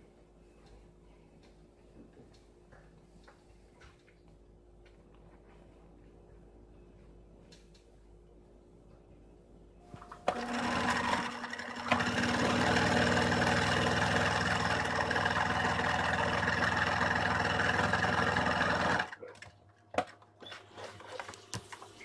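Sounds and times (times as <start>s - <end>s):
sewing machine stitching: 10.0s - 19.2s.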